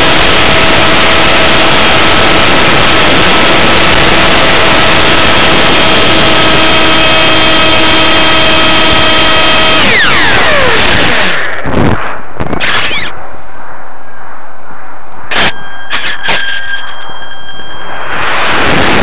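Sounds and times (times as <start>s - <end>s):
electric motor whine: 0.0s - 12.0s
wind rushing over microphone: 0.0s - 19.0s.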